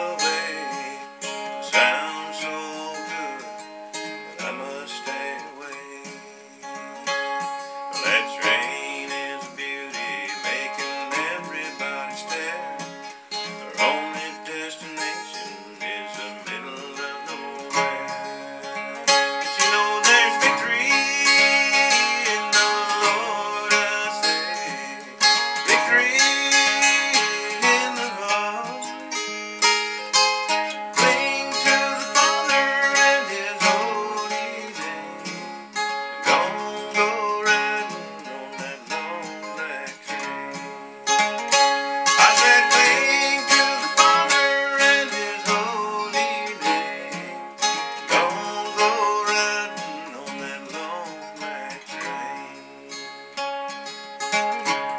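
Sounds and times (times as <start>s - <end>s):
acoustic guitar strumming: 0.0s - 54.9s.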